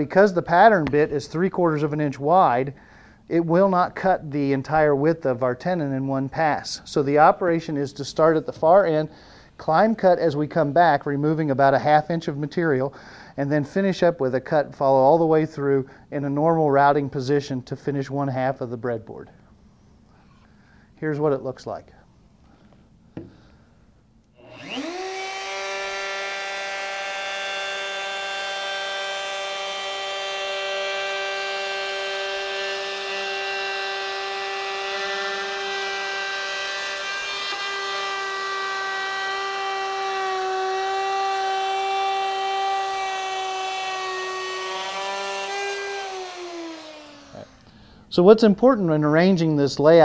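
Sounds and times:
router motor whining: 24.4s - 47.7s
router motor winding down: 24.4s - 47.7s.

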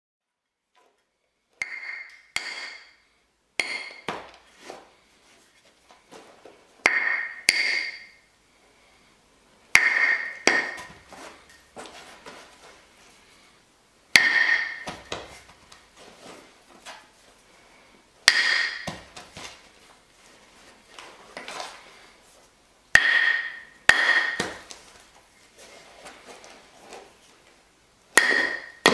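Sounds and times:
hammerstone cracking stone: 1.6s - 2.9s, 3.6s - 4.3s, 6.9s - 8.1s, 9.8s - 11.0s, 14.2s - 15.2s, 18.3s - 19.0s, 23.0s - 24.7s, 28.2s - 28.9s.

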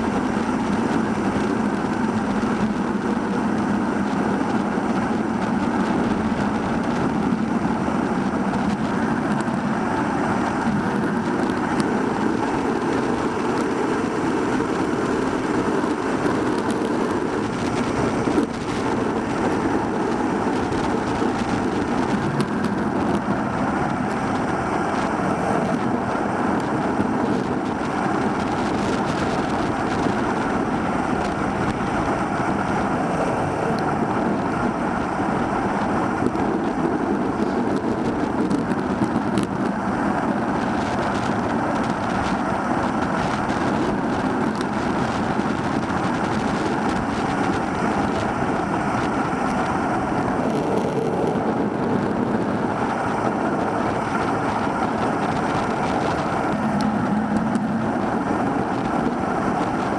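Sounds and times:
bicycle tyre noise on road: 0.0s - 59.9s
rushing wind: 0.0s - 59.9s.

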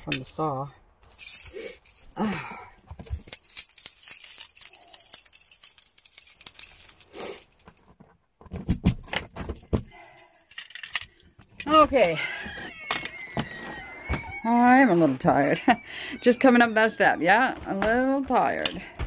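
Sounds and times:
keys jangling on keyring: 1.0s - 7.9s, 8.5s - 12.1s.

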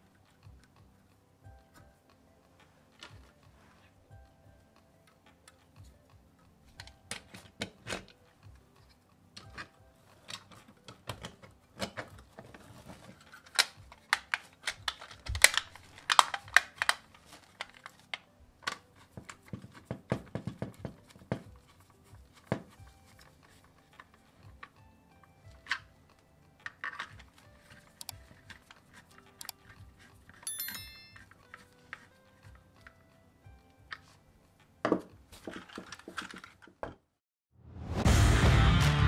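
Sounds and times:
model car clicking and knocking: 8.8s - 22.8s, 26.6s - 30.5s, 34.9s - 37.1s.

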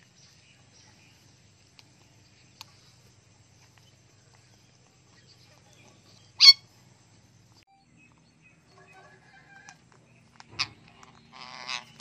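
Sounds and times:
faint bird chirps: 0.0s - 12.0s
parrots squawking: 6.4s - 6.7s, 10.5s - 12.0s.

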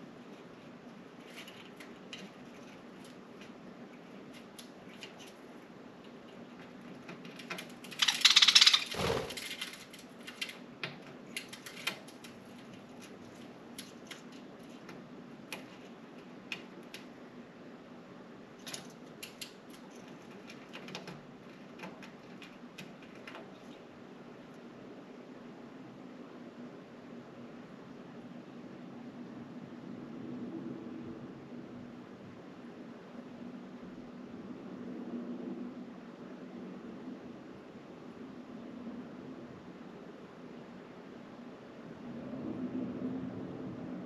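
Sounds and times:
birds clicking on window blinds: 0.2s - 17.2s, 18.6s - 24.6s
window blinds rattling: 6.4s - 10.7s.

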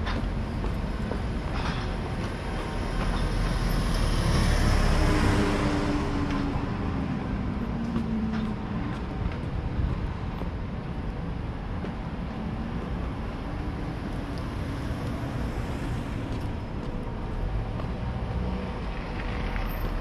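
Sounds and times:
vehicle passing by: 2.8s - 8.0s.

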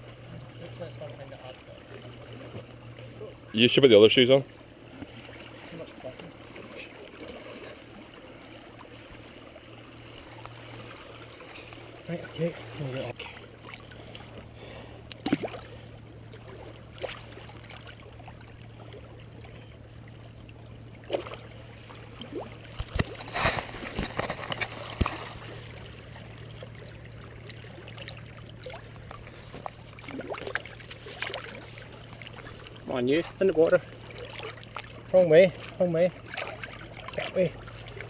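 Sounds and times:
sea water lapping on rocks: 4.1s - 38.0s
sharp knocks and splashes: 10.0s - 38.0s.

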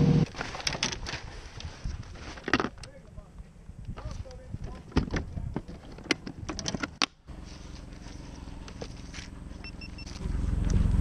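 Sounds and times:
steady low rumble: 7.3s - 11.0s
short electronic beeps: 9.6s - 10.2s.

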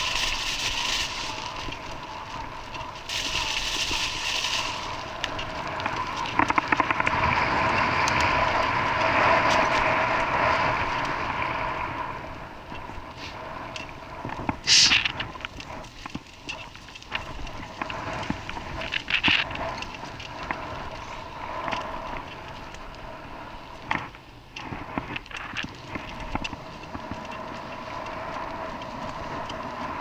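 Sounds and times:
vehicle humming: 0.0s - 30.0s
short loud hiss: 14.6s - 15.1s.

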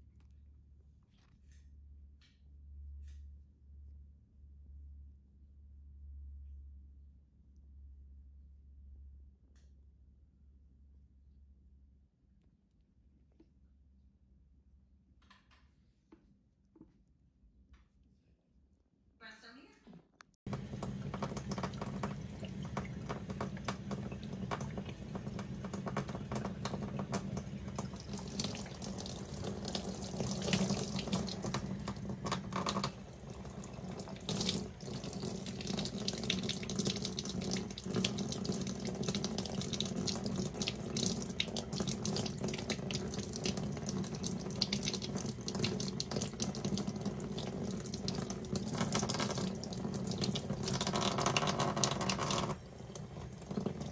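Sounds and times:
tap water running into sink: 20.5s - 53.9s.

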